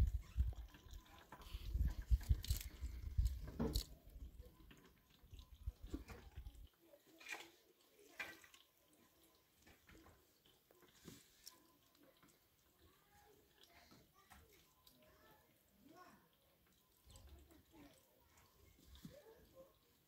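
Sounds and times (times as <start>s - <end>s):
water dripping into plastic can: 0.0s - 15.2s.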